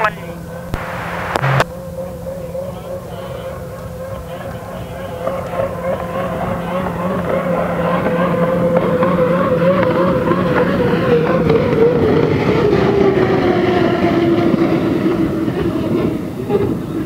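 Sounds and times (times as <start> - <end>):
noisy water rush: 0.0 - 2.3
turbine engine whine: 0.0 - 17.0.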